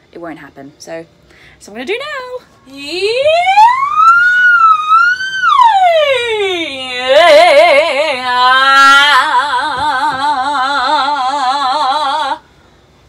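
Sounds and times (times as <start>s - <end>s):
woman singing with vibrato: 2.7s - 12.5s.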